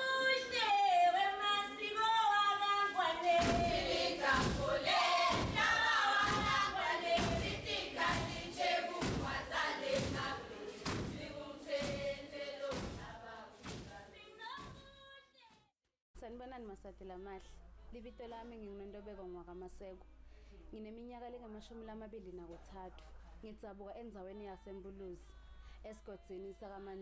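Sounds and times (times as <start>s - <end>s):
group of voices singing: 0.0s - 14.3s
heavy thumping beat: 3.3s - 15.0s.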